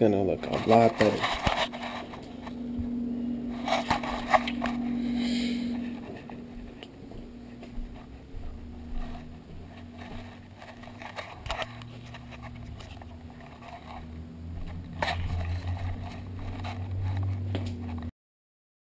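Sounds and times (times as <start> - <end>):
low hum and rumble: 0.4 - 18.1
camera handling rubbing and scrapes: 0.5 - 2.6, 3.4 - 5.0, 8.9 - 14.1, 14.7 - 18.0.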